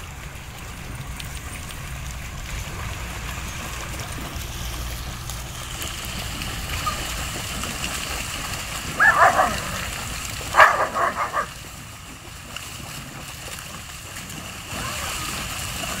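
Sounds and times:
splashing water: 0.0s - 16.0s
dogs barking: 8.9s - 11.6s.

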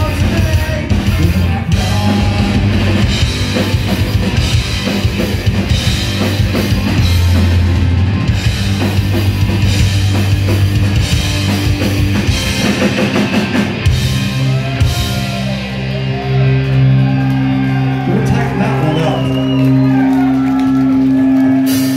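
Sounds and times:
pounding drums: 0.0s - 15.5s
distorted electric guitars: 0.0s - 21.9s
punk rock band playing live: 0.0s - 21.9s.

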